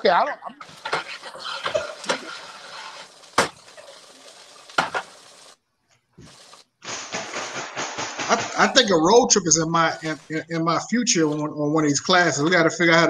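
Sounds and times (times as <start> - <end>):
food sizzling in a skillet: 0.6 - 5.6
sharp knocks: 6.8 - 8.9.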